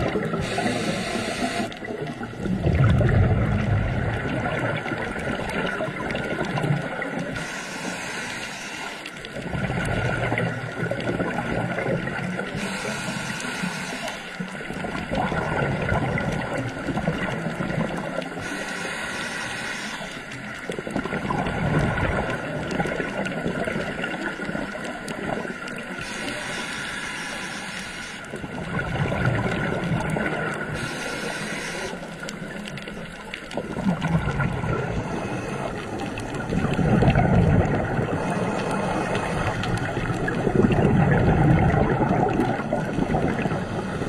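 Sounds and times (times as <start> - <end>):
exhaled bubbles gurgling underwater: 0.0 - 44.0
regulator hiss on inhale: 0.4 - 1.7, 7.3 - 9.3, 12.6 - 14.5, 18.4 - 20.4, 26.0 - 28.3, 30.7 - 32.3.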